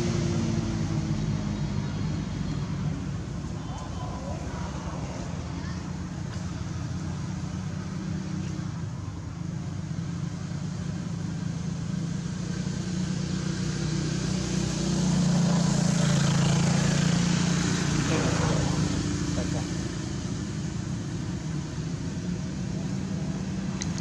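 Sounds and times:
vehicle engine humming: 0:00.0 - 0:24.0.

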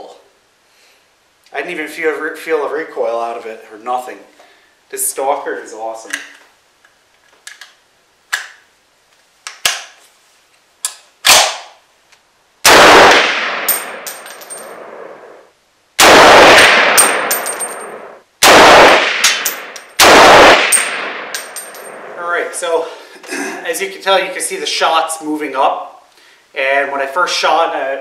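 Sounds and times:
rifle shots echoing: 0:12.6 - 0:15.3, 0:16.0 - 0:22.4
high metallic ringing: 0:13.7 - 0:14.8, 0:17.0 - 0:18.0, 0:20.8 - 0:22.0.

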